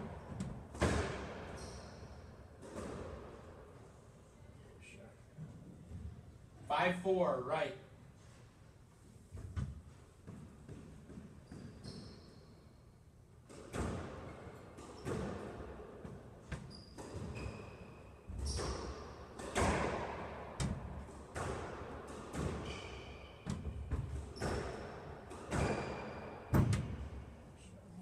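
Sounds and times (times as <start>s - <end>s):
squash ball struck by rackets: 0.4s - 1.6s, 13.4s - 17.5s, 18.3s - 27.2s
shoes squeaking on court floor: 1.2s - 2.9s, 9.8s - 12.8s, 16.4s - 19.7s, 22.3s - 27.1s.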